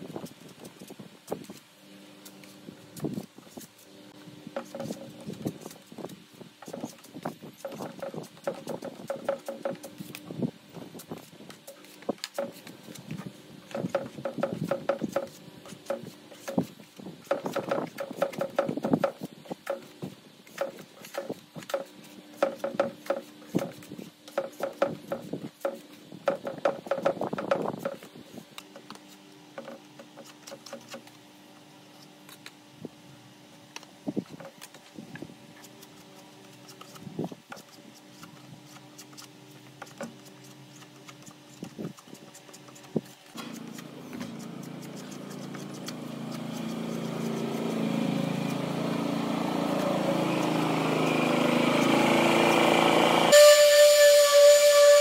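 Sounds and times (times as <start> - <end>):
sanding block rubbing strokes: 39.8 - 48.8.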